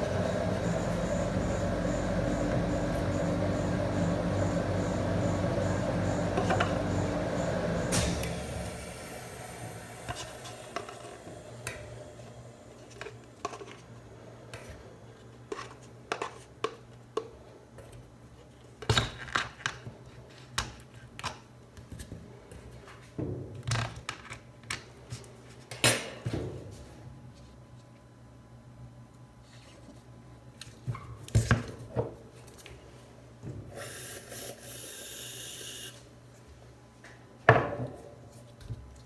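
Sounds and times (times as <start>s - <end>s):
steady hum: 0.0s - 16.2s.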